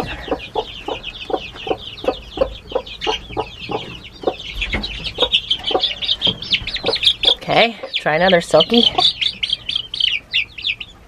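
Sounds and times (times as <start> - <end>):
chicks peeping: 0.0 - 11.0
hen clucking: 0.0 - 11.0.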